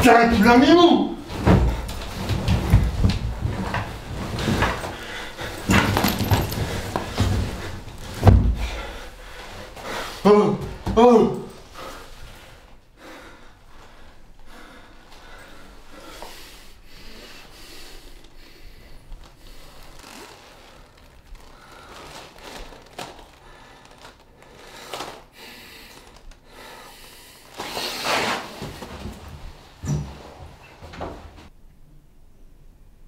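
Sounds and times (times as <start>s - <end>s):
rustling: 1.2s - 10.2s, 17.9s - 26.4s.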